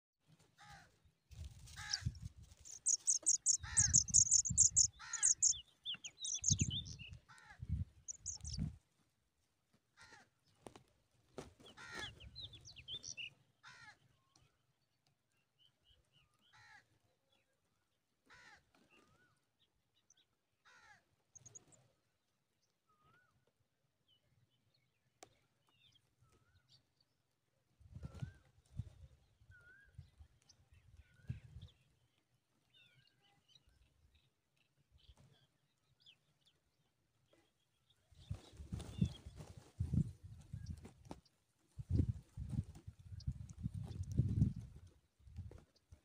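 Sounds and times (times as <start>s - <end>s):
high rapid bird chirps: 2.7s - 7.0s, 8.1s - 8.6s.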